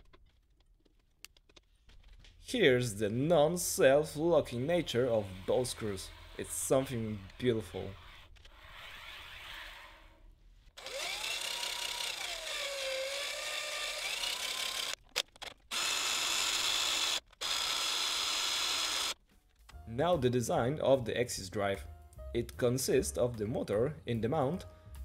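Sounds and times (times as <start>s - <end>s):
cordless drill motor: 4.7s - 10.0s, 10.7s - 15.0s, 15.7s - 19.2s.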